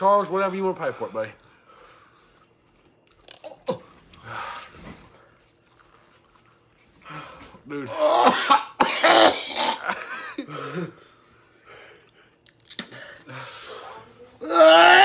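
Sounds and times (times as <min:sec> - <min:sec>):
man coughing harshly: 0:07.9 - 0:11.0.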